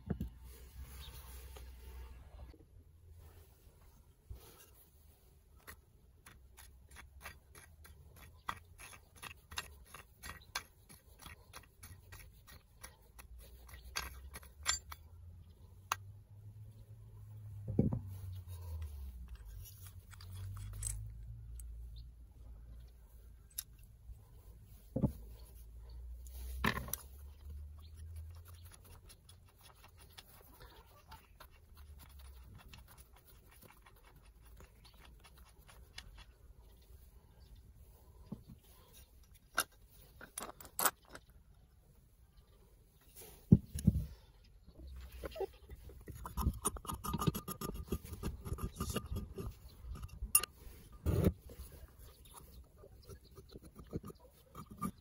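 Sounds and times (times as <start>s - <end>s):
gritty metal scratching and clicking: 5.6s - 15.1s, 45.9s - 51.4s, 52.2s - 55.0s.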